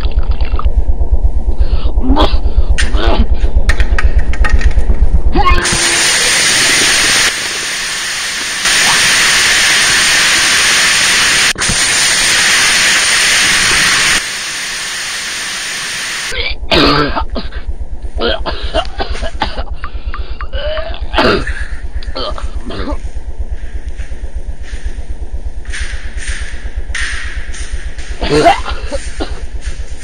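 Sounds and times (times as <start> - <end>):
fast low pulsing: 0.0 - 30.0
loud steady hiss: 5.6 - 16.4
cough-like noises: 16.3 - 23.1, 28.2 - 29.5.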